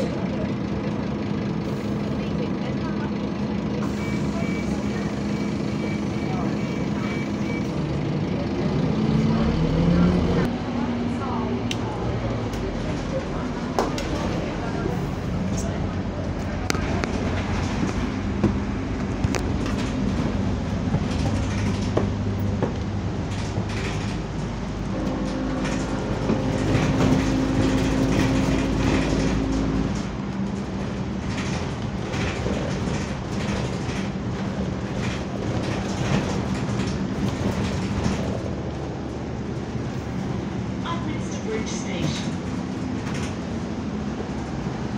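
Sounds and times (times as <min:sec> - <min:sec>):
bus engine hum: 0:00.0 - 0:44.9
interior panels rattling: 0:16.8 - 0:38.8.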